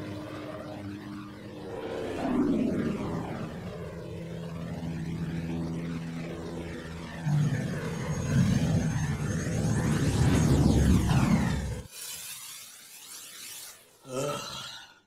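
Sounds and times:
aircraft engine droning: 0:00.0 - 0:12.0.

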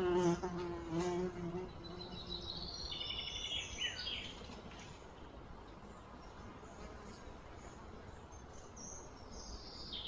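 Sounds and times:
insect buzzing: 0:00.0 - 0:03.0
bird chirping: 0:01.6 - 0:06.8.

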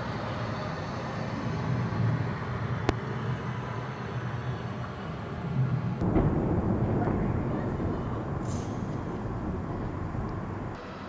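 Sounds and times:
low rumble: 0:06.0 - 0:10.8.

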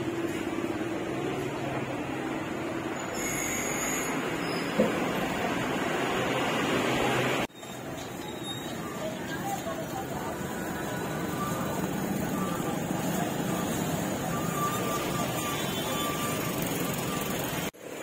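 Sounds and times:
faint distant voices: 0:07.8 - 0:17.5
vehicle engine running: 0:09.3 - 0:17.7.

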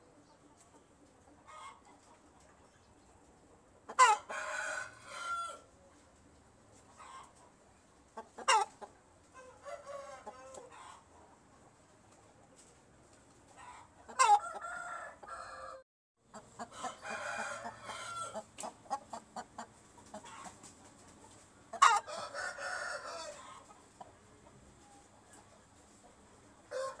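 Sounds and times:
rooster clucking: 0:01.4 - 0:02.5, 0:03.8 - 0:05.7, 0:06.9 - 0:11.5, 0:13.5 - 0:27.0
rooster crowing: 0:04.0 - 0:05.7, 0:09.5 - 0:10.6, 0:14.3 - 0:15.8, 0:16.7 - 0:18.4, 0:21.8 - 0:23.4, 0:26.7 - 0:27.0.

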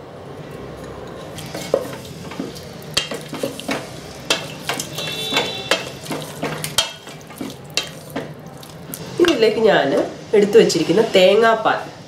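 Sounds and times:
wooden spatula scraping a metal pot: 0:01.2 - 0:08.3.

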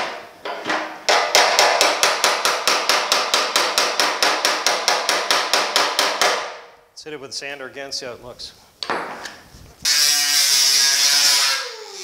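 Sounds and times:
hammer tapping sheet metal: 0:00.0 - 0:06.6.

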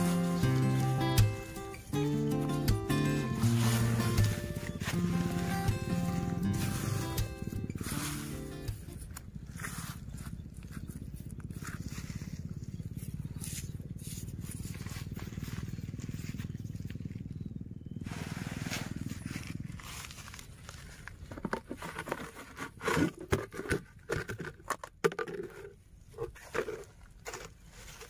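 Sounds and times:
hand digging through sand: 0:00.0 - 0:12.6, 0:18.0 - 0:22.8
steady low rumble: 0:00.0 - 0:21.3.

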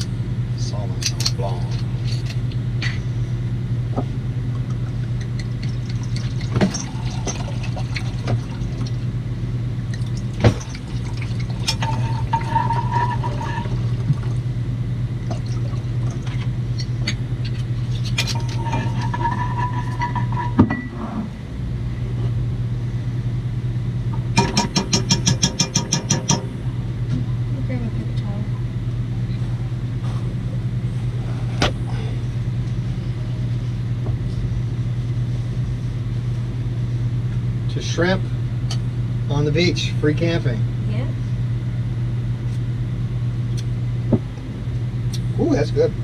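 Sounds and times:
low hum: 0:00.0 - 0:46.0
wine glugging into glass: 0:05.7 - 0:08.9, 0:10.0 - 0:14.3.

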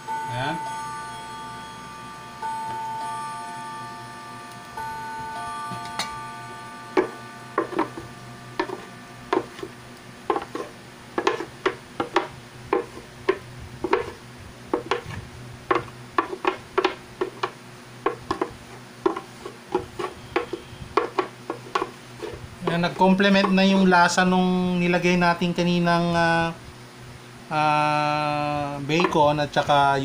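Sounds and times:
spoon knocking on plastic blender jar: 0:07.0 - 0:09.7, 0:10.3 - 0:15.1, 0:15.7 - 0:21.9.

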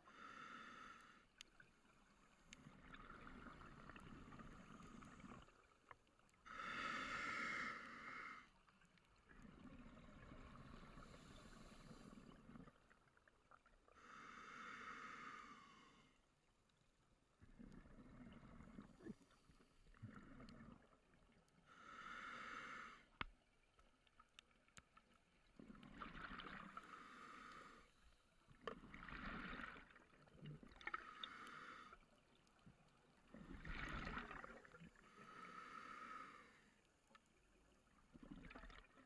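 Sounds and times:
exhaled air bubbling underwater: 0:01.3 - 0:14.2, 0:17.3 - 0:22.2, 0:25.2 - 0:36.6, 0:37.4 - 0:39.0.

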